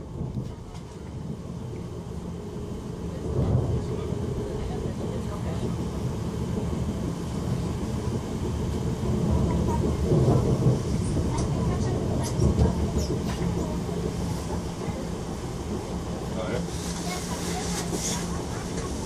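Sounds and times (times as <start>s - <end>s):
train rumble inside carriage: 0.0s - 19.0s.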